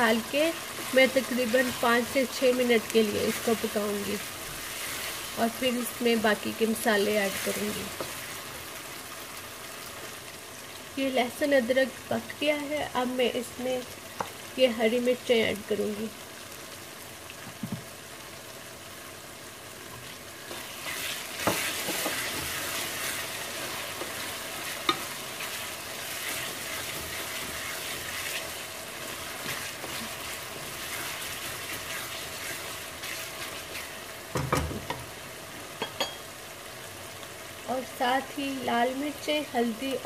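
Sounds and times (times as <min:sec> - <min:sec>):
food sizzling in hot oil: 0:00.0 - 0:40.0
wooden spatula scraping a wok: 0:20.4 - 0:34.0.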